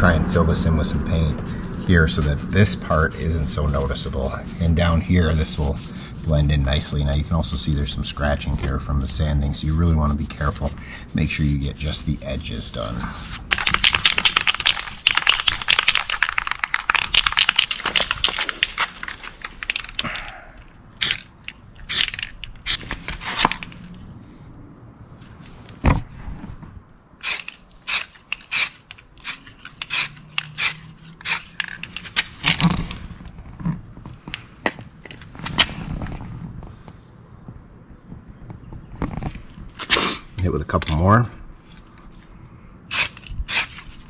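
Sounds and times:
spray can ball rattling: 0:13.5 - 0:20.1, 0:21.0 - 0:22.8, 0:27.2 - 0:32.2, 0:42.9 - 0:43.8
spray can spraying bursts: 0:27.2 - 0:31.6, 0:42.9 - 0:43.8.

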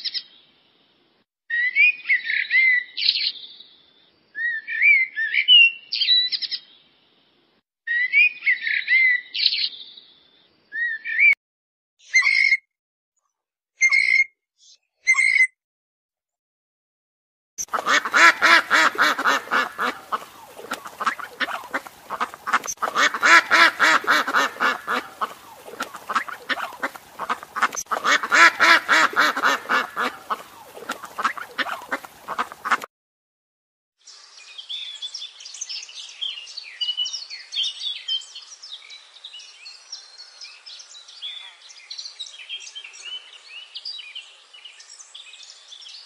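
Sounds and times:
small bird twittering: 0:17.6 - 0:32.8
geese honking and cackling: 0:17.6 - 0:32.9.

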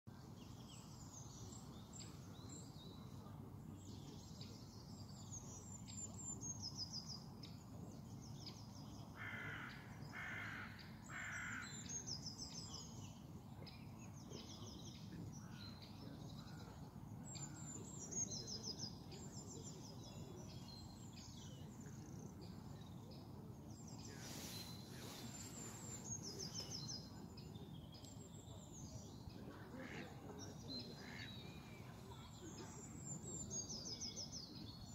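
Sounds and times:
songbirds singing trills: 0:00.1 - 0:34.9
crow cawing: 0:09.2 - 0:11.6.

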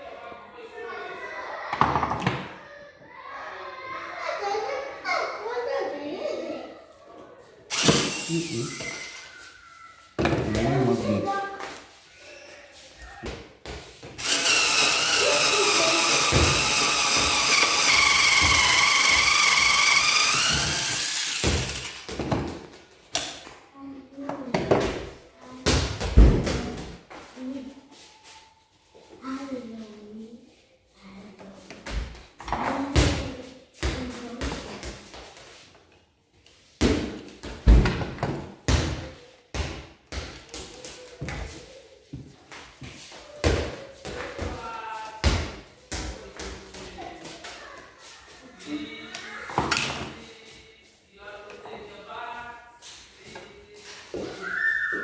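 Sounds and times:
electric drill into wood: 0:07.7 - 0:09.0, 0:14.2 - 0:22.1.

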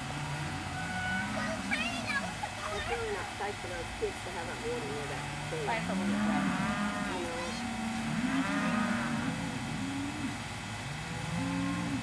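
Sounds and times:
cattle mooing: 0:00.2 - 0:01.7, 0:04.4 - 0:12.0.

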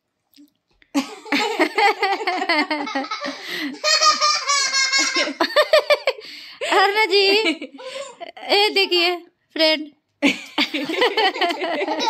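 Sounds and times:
hearty laughter: 0:01.0 - 0:06.2, 0:10.3 - 0:12.0.

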